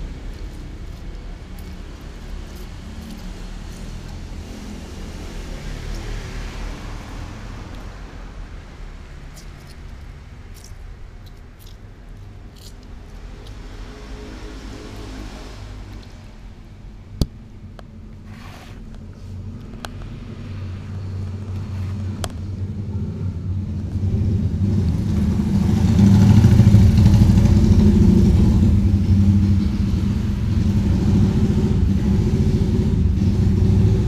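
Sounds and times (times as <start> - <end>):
vehicle engine running: 0.0 - 8.9, 19.1 - 34.0.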